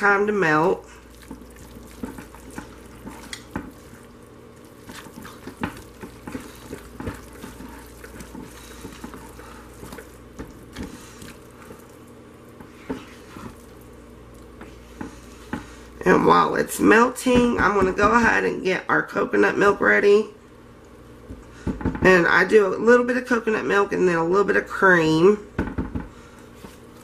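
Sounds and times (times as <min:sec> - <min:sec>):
steady low hum: 0:00.0 - 0:23.0
spatula scraping thick soap: 0:01.2 - 0:04.1, 0:04.8 - 0:11.9, 0:12.6 - 0:13.7.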